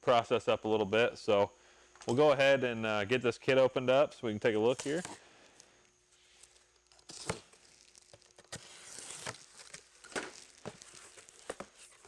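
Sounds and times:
cardboard box tape tearing: 6.9s - 12.0s.

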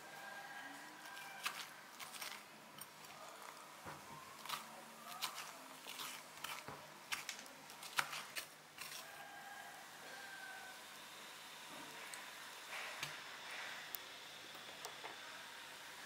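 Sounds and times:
spoon scraping pumpkin: 0.9s - 3.7s, 4.3s - 9.7s.

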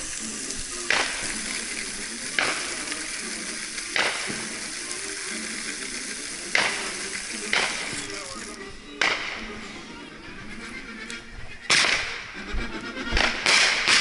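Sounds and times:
fireworks crackling hiss: 0.0s - 9.7s
firework bangs: 0.3s - 4.8s, 6.4s - 8.2s.

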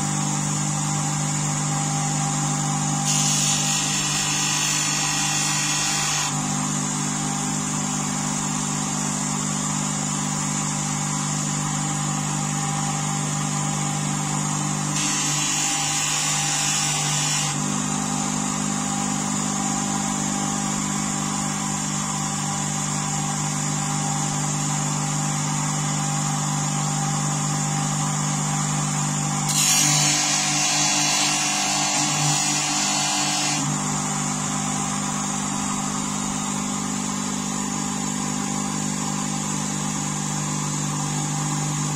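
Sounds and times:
bench grinder motor humming: 0.0s - 8.9s, 11.4s - 21.7s, 24.2s - 38.8s
blade hissing on polishing wheel: 3.0s - 6.4s, 14.9s - 17.6s, 29.5s - 33.8s.

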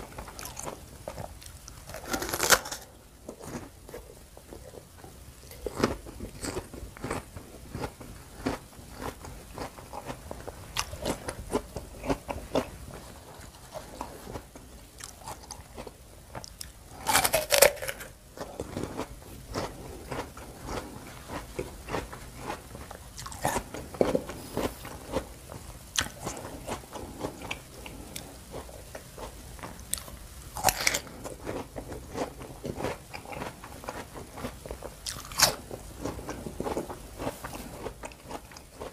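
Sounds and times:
person chewing crisp fruit: 0.0s - 38.9s.

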